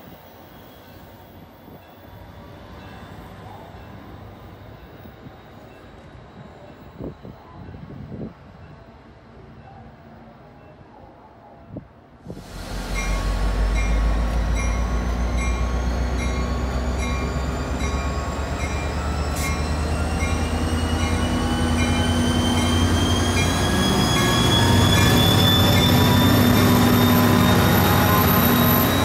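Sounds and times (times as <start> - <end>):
locomotive bell ringing: 12.9 - 29.0.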